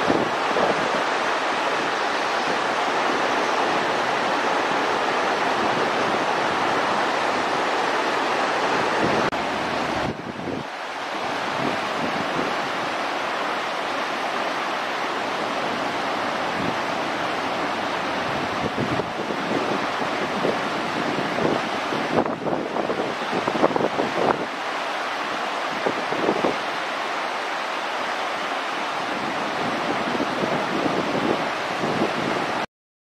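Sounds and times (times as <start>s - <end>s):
steady rushing noise: 0.0s - 32.6s.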